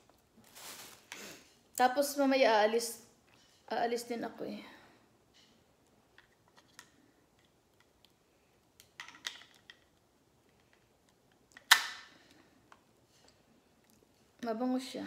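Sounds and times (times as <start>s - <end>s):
sharp plastic snap: 11.5s - 12.1s.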